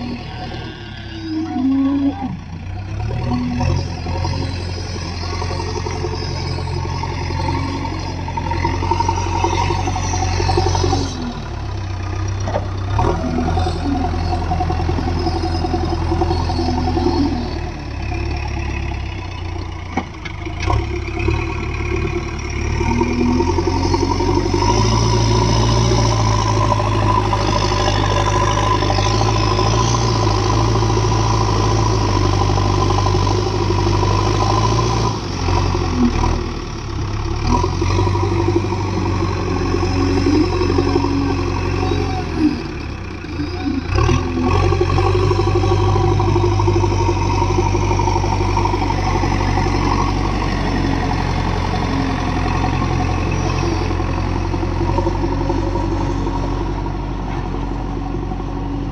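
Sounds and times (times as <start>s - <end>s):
diesel engine under load: 0.0s - 58.9s.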